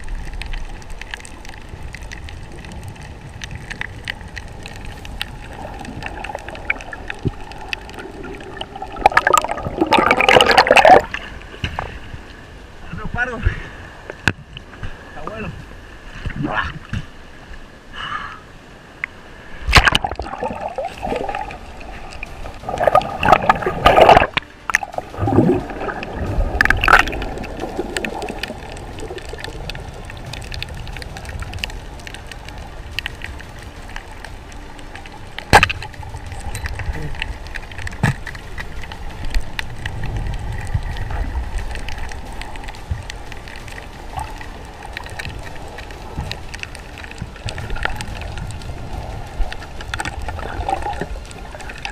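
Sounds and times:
water splashing and sloshing: 0.0s - 17.7s, 18.8s - 51.9s.

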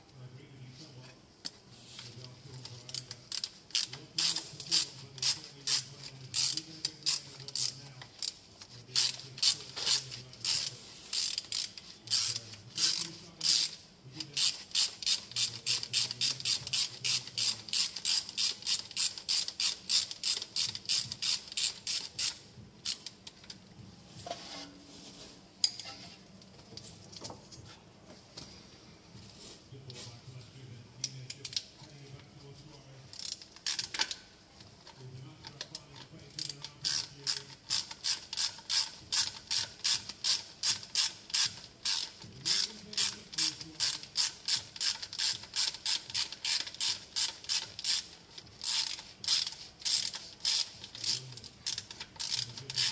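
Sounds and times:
ratchet wrench clicking: 2.9s - 8.4s, 9.0s - 23.2s, 33.1s - 34.1s, 36.4s - 52.9s.

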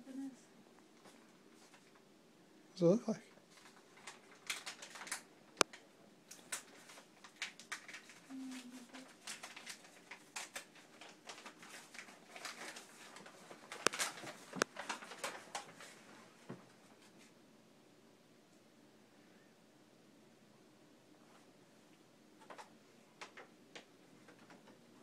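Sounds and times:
paper crinkling and snapping: 3.5s - 16.1s, 22.4s - 24.8s.

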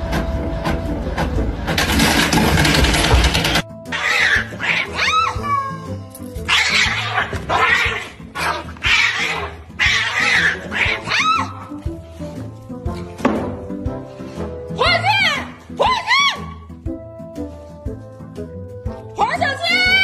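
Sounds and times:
background music: 0.0s - 20.0s
cats yowling: 3.9s - 11.7s.

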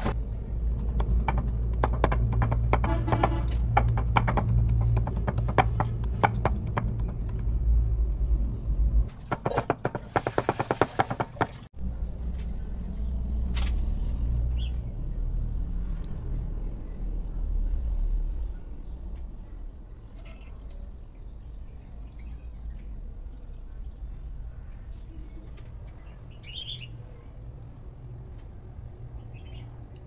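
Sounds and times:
knife chopping on wooden board: 0.9s - 7.4s, 9.3s - 11.6s
steady low rumble: 3.5s - 9.1s, 11.8s - 20.1s.

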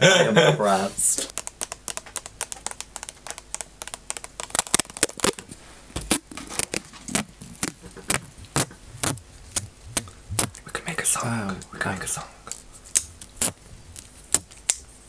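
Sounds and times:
plastic and nail clicks: 1.3s - 5.4s.

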